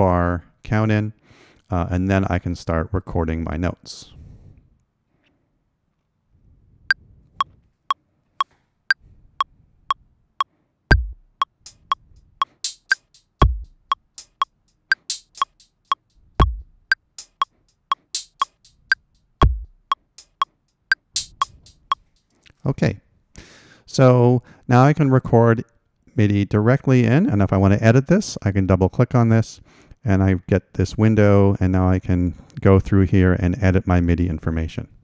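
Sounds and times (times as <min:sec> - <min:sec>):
deep kick drum: 0:10.9 - 0:11.4, 0:13.4 - 0:13.8, 0:16.4 - 0:16.7, 0:19.4 - 0:19.9
bright noisy drum machine hits: 0:10.9 - 0:15.7, 0:16.4 - 0:18.7, 0:19.4 - 0:20.4, 0:21.2 - 0:21.9
metronome clicking: 0:10.9 - 0:22.3.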